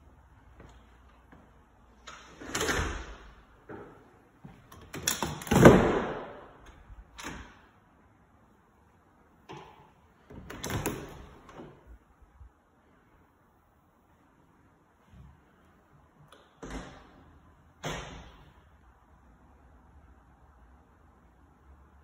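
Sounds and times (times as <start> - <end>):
closet doors sliding and knocking: 2.1 - 3.9, 10.2 - 12.0.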